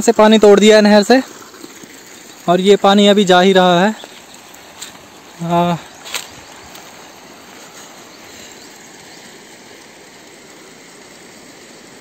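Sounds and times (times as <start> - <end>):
outdoor ambient hiss: 0.0 - 12.0.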